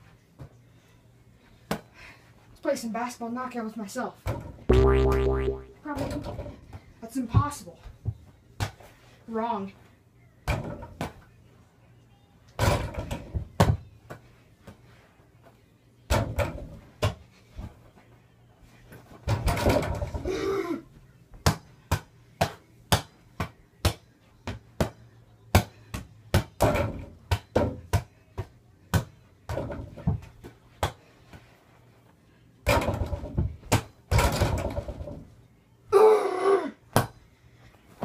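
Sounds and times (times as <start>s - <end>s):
rubber ball bouncing on floor: 4.7s - 5.7s.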